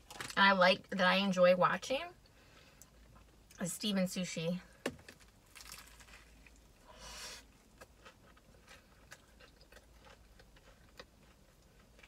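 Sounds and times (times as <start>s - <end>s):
crunchy bite: 5.5s - 6.5s.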